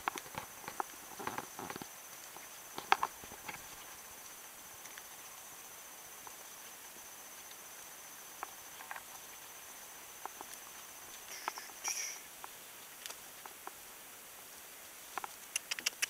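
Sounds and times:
cricket trilling: 0.0 - 16.0.

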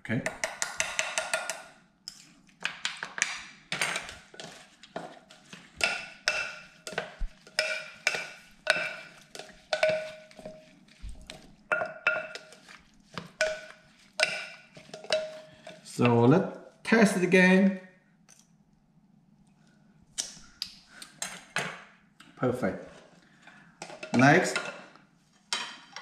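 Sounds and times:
spoon stirring sauce in a bowl: 0.3 - 16.2
spoon clinking against bowl: 5.8 - 10.7, 13.4 - 15.8.

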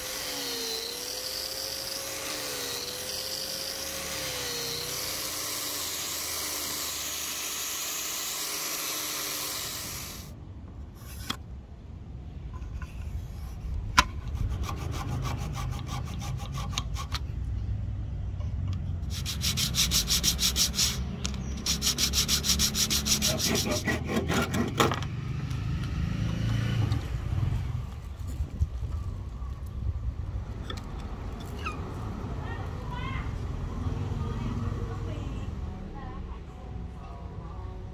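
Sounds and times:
rasping on wood: 14.2 - 17.2, 19.0 - 21.0, 21.6 - 24.9.

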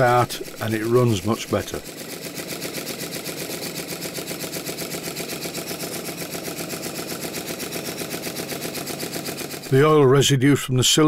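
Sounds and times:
model steam engine running: 0.0 - 10.0.

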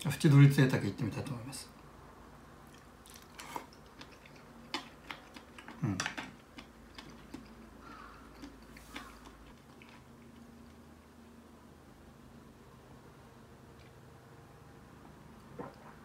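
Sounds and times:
chewing: 2.7 - 11.1, 15.4 - 16.0.

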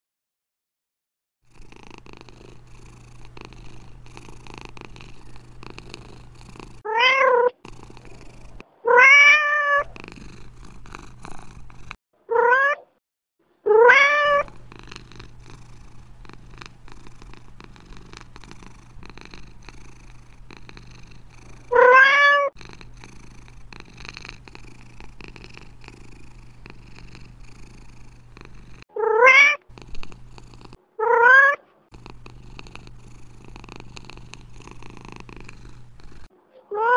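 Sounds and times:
cat purring: 1.4 - 8.9, 9.6 - 12.0, 14.3 - 36.9
cat meowing: 6.9 - 7.6, 8.8 - 10.0, 12.3 - 13.0, 13.6 - 14.6, 21.7 - 22.6, 28.9 - 29.7, 31.0 - 31.7, 36.6 - 36.9.

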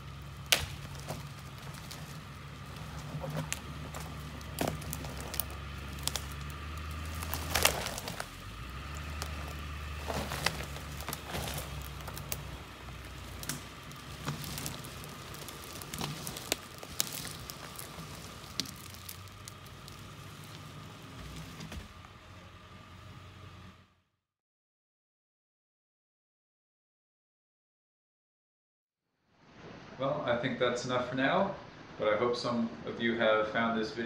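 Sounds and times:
footsteps crunching through twigs: 0.0 - 22.0
twigs snapping: 0.0 - 22.1
truck engine idling: 0.0 - 23.9.

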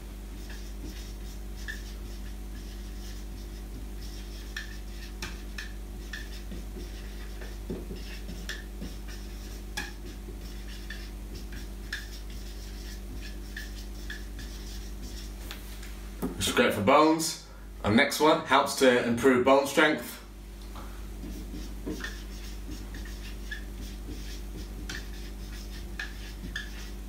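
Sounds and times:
steady low hum: 0.0 - 27.0
marker squeaking on whiteboard: 0.4 - 15.3, 21.2 - 26.9.

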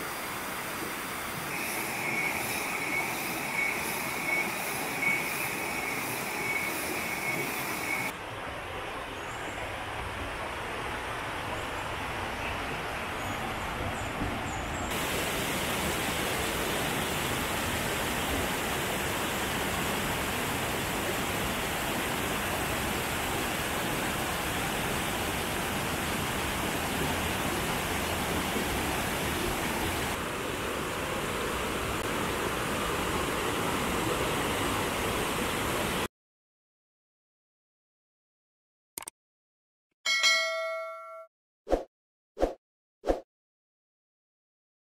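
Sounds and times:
waterfall and stream roar: 0.0 - 36.1
faint high chirps: 1.5 - 8.1.

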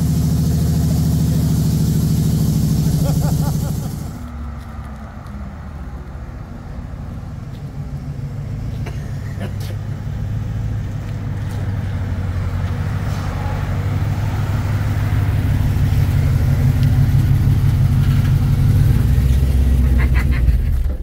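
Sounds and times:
pickup truck engine rumbling: 0.0 - 21.0.

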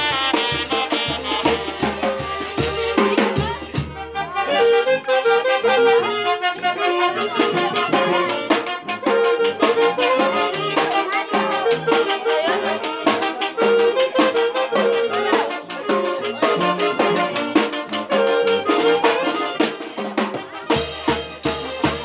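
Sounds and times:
brass melody: 0.0 - 22.0
drums keeping a beat: 0.0 - 22.0.

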